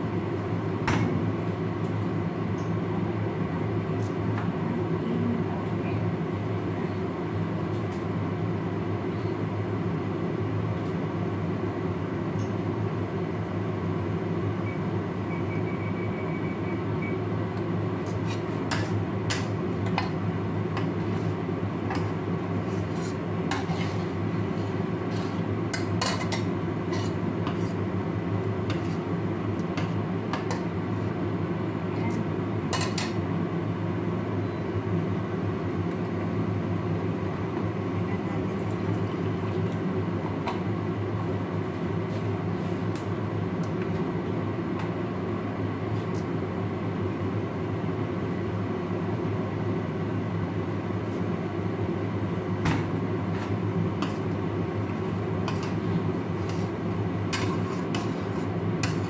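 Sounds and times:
spatula scraping frying pan: 0:22.6 - 0:27.8, 0:28.7 - 0:29.1, 0:55.4 - 0:59.0.

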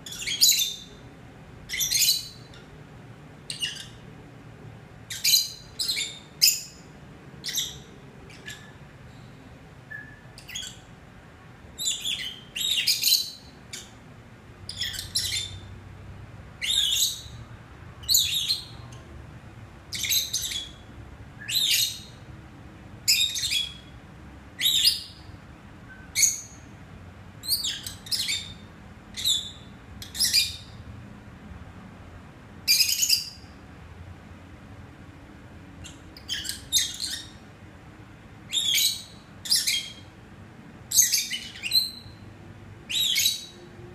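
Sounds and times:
lovebirds chirping: 0:00.0 - 0:04.2, 0:05.0 - 0:11.0, 0:11.6 - 0:15.8, 0:16.6 - 0:19.2, 0:19.9 - 0:22.3, 0:23.0 - 0:24.0, 0:24.6 - 0:26.7, 0:27.4 - 0:30.8, 0:32.6 - 0:33.6, 0:35.8 - 0:37.5, 0:38.5 - 0:40.2, 0:40.9 - 0:42.3, 0:42.9 - 0:43.8.

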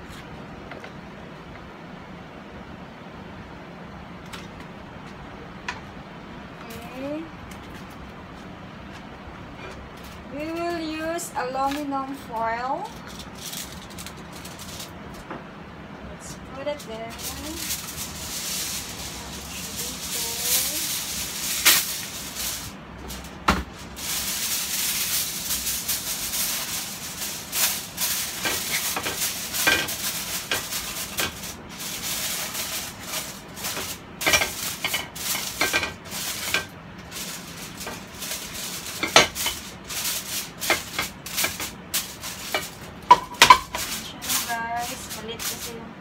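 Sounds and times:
aluminium foil crinkling: 0:09.7 - 0:15.3, 0:16.3 - 0:46.0.

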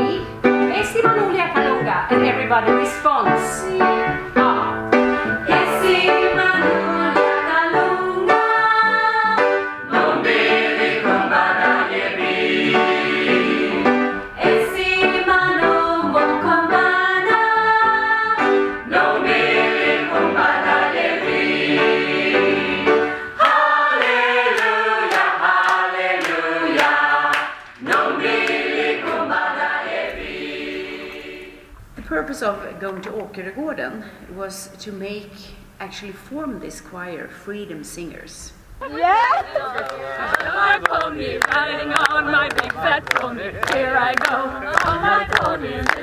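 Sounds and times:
choir singing in harmony: 0:03.8 - 0:31.8, 0:40.0 - 0:46.0.

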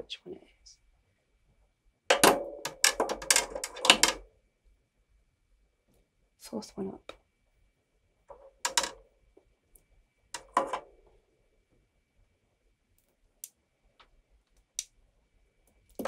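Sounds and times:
rustling clicks of small parts: 0:02.2 - 0:04.2, 0:08.3 - 0:09.0.

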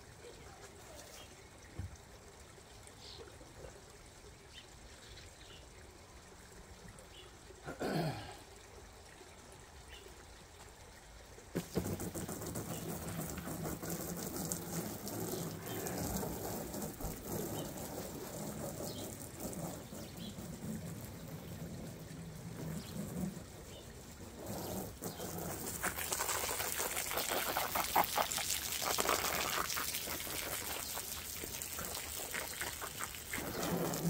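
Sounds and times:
hose spraying water: 0:11.4 - 0:34.0.

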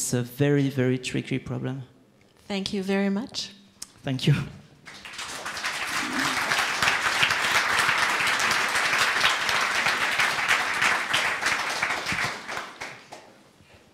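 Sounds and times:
audience applauding: 0:04.9 - 0:13.4.

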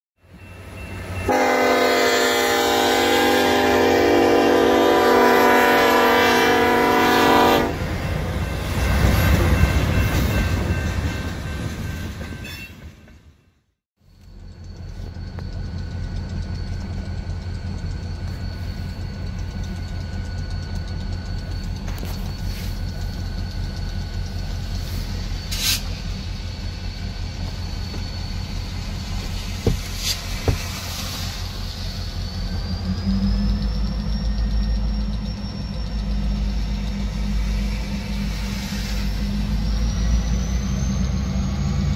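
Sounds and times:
train rolling past rumble: 0:00.2 - 0:41.9
locomotive air horn blast: 0:01.2 - 0:07.8.

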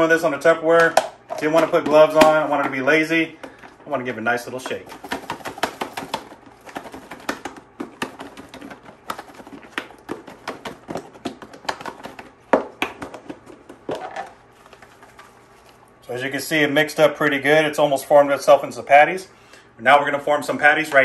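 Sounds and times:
food knocking in shaken container: 0:04.4 - 0:15.5.

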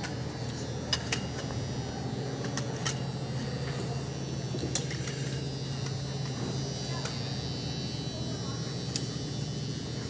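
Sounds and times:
low hum of hall ambience: 0:00.0 - 0:10.0.

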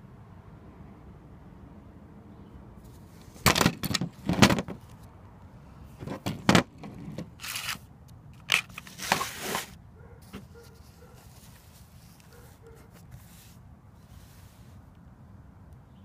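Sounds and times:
rustling and brushing handling noise: 0:05.9 - 0:07.8, 0:08.4 - 0:14.9.

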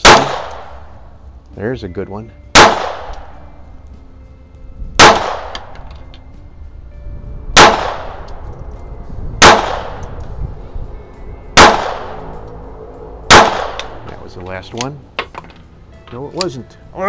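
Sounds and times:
pistol shots with echo: 0:00.0 - 0:00.9, 0:02.5 - 0:03.4, 0:05.0 - 0:05.8, 0:07.6 - 0:08.4, 0:09.4 - 0:10.2, 0:11.6 - 0:12.4, 0:13.3 - 0:14.2.

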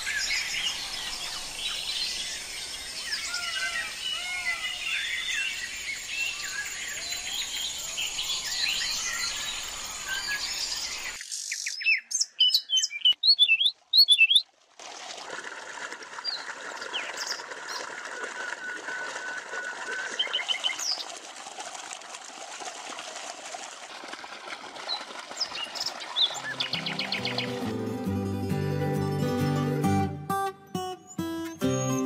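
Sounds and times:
birds chirping: 0:00.0 - 0:14.4, 0:24.9 - 0:29.8.

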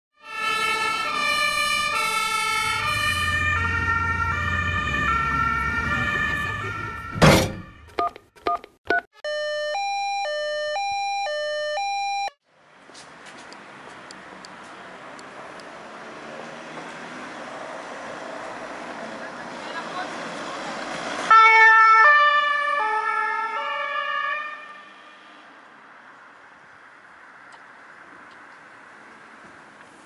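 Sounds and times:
two-tone fire engine siren: 0:00.2 - 0:08.1, 0:09.2 - 0:12.4, 0:21.3 - 0:25.4
two-note siren jingle: 0:01.1 - 0:08.0, 0:09.2 - 0:12.4
faint street noise: 0:12.4 - 0:22.4, 0:24.4 - 0:30.0.

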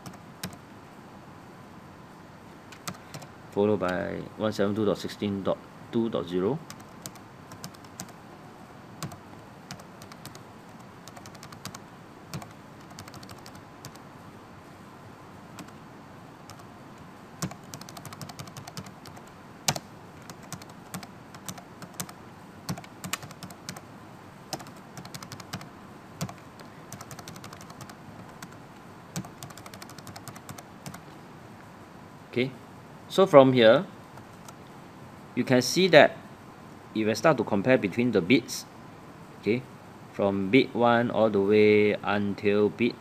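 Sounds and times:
keyboard typing clicks: 0:00.0 - 0:00.6, 0:06.7 - 0:08.2, 0:09.0 - 0:14.0, 0:15.6 - 0:15.8, 0:16.5 - 0:16.7, 0:17.4 - 0:23.8, 0:24.5 - 0:28.6, 0:29.2 - 0:31.1.

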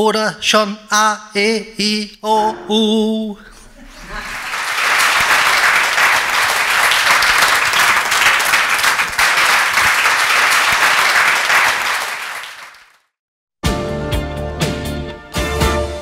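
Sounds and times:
audience applauding: 0:03.9 - 0:13.0
music: 0:13.6 - 0:16.0.

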